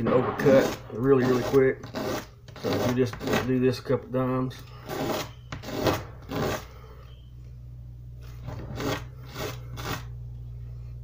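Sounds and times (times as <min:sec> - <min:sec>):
board rubbed on sandpaper: 0:00.5 - 0:03.5, 0:04.8 - 0:06.7, 0:08.4 - 0:10.1.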